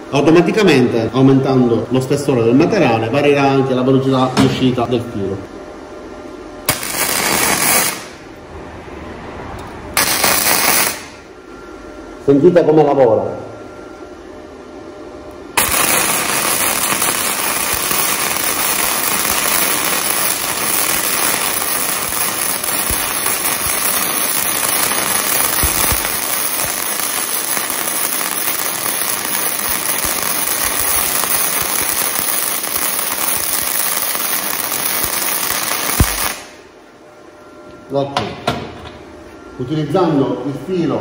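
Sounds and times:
welding arc crackling: 6.6 - 8.3, 9.9 - 11.3, 15.6 - 36.7.

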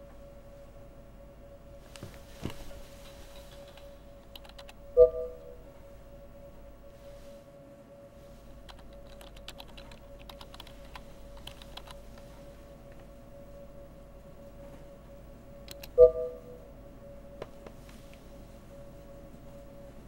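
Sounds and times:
faint steady hum: 0.0 - 20.0
typing on computer keyboard: 3.4 - 4.8, 8.7 - 12.2, 15.7 - 16.0.

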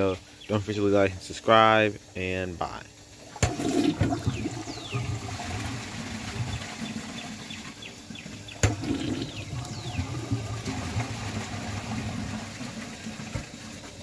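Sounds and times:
toilet flushing: 3.1 - 14.0
water swirling and draining: 3.2 - 14.0.

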